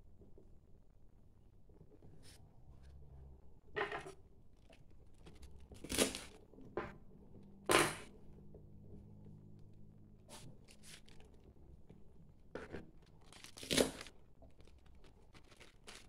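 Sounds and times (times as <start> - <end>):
banana leaf crinkling and rustling: 10.7 - 11.4, 12.7 - 16.0.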